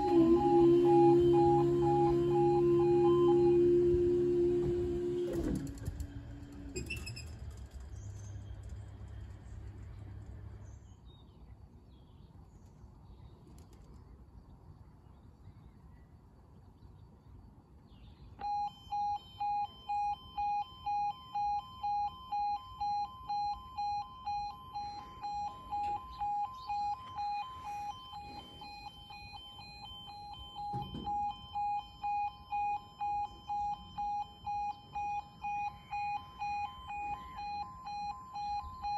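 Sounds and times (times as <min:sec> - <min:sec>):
crossing alarm pulsing beeps: 0:00.0 - 0:06.1, 0:18.4 - 0:38.9
barrier motor hum: 0:00.0 - 0:10.8, 0:18.4 - 0:38.9.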